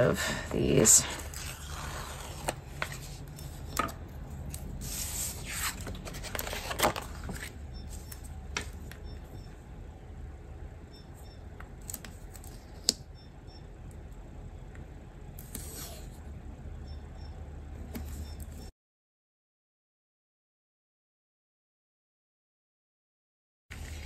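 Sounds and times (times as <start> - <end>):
paper pages rustling and sliding: 1.1 - 3.9, 4.5 - 8.9, 23.7 - 24.0.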